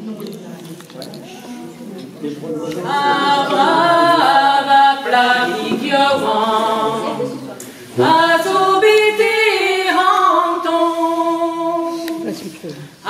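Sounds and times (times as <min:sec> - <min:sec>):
women singing a cappella: 0:02.7 - 0:13.0.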